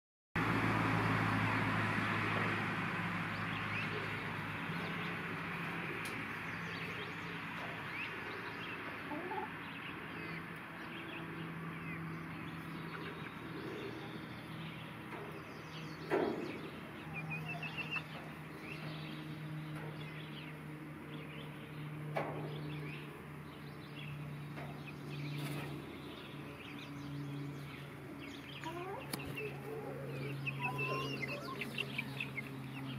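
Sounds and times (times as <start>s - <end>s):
hens clucking: 3.8s - 10.7s, 28.6s - 32.9s.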